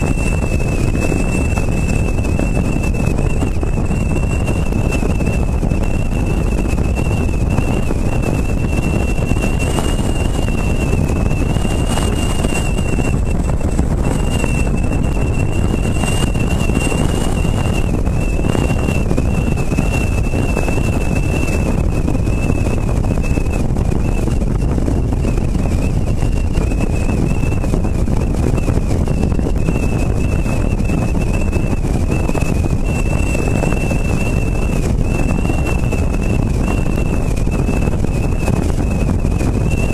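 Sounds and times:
thin high whistle: 0.0 - 24.3, 29.0 - 39.9
road noise: 0.0 - 28.3
wind buffeting microphone: 0.0 - 39.9.

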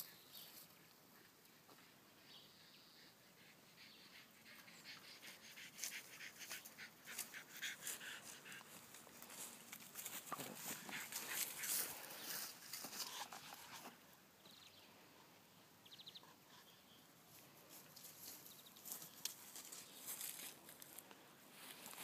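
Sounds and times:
footsteps in dry leaves: 8.8 - 13.2, 17.7 - 22.0.

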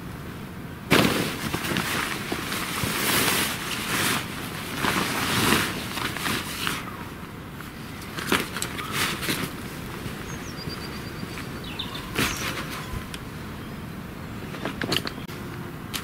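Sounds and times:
nylon tent fly rustling: 0.9 - 7.0, 7.6 - 13.1.

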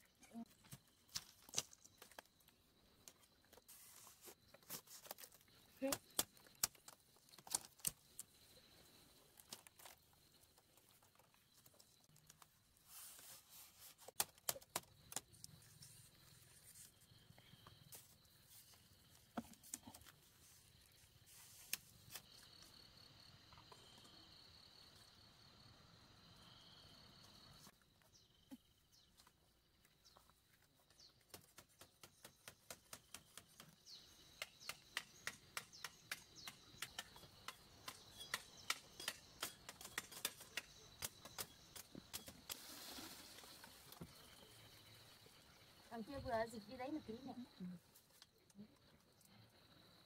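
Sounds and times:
bamboo strips clicking and tapping: 5.0 - 8.3, 14.1 - 15.6, 31.2 - 42.6.

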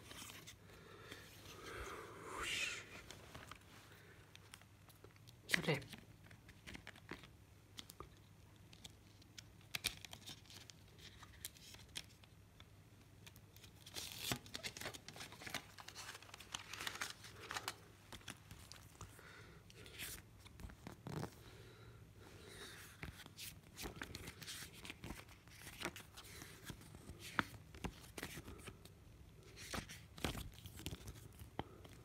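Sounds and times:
paper rustling: 13.6 - 19.1.

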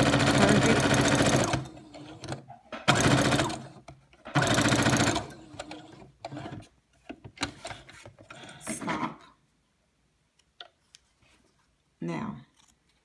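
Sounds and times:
sewing machine stitching: 0.0 - 6.7.

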